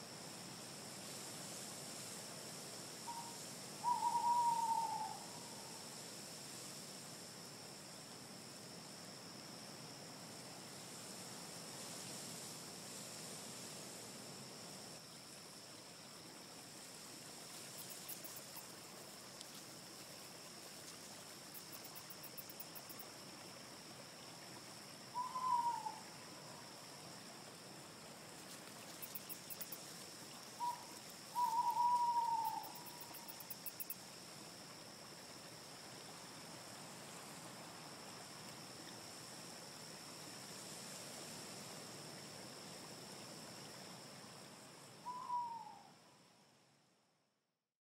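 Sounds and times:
background hiss: 0.0 - 47.6
bird calling loudly: 31.4 - 32.8.

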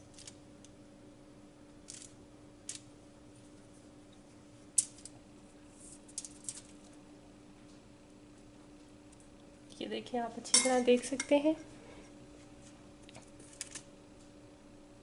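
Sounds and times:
light clicks and foil crinkles: 0.0 - 0.8, 5.8 - 7.0, 12.6 - 14.3
faint steady hum: 0.0 - 15.0.

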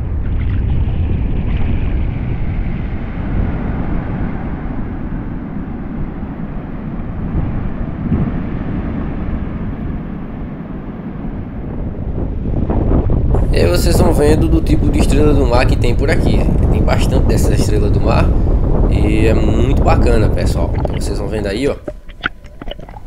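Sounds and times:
sea rushing: 0.0 - 23.0
wind rumbling on microphone: 0.0 - 23.0.

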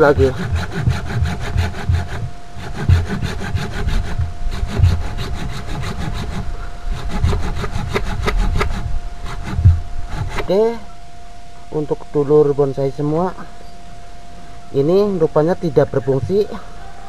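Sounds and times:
blade rasping on wood: 0.0 - 10.8.

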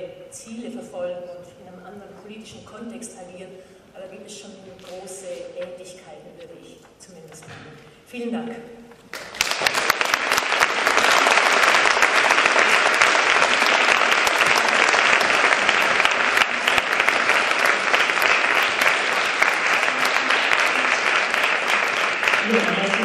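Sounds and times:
audience applauding: 9.1 - 23.0.

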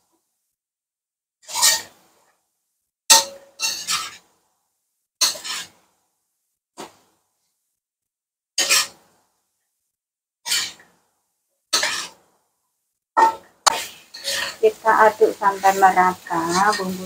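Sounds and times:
metal spatula scraping a wok: 1.4 - 2.0, 3.1 - 4.3, 5.2 - 5.8, 8.6 - 9.0, 10.4 - 10.9, 11.7 - 12.2, 13.2 - 17.0.

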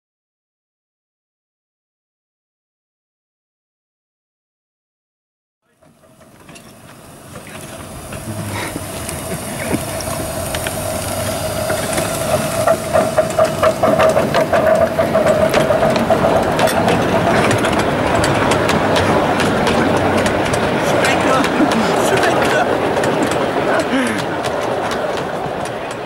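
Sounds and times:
miniature steam locomotive: 5.6 - 26.0
wheels clicking over rail joints: 5.6 - 26.0
steady whining tone: 5.7 - 26.0.

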